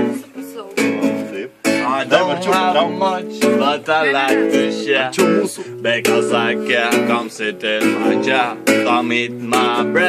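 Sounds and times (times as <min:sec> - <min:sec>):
acoustic guitar strumming: 0:00.0 - 0:10.0
people singing: 0:01.1 - 0:10.0.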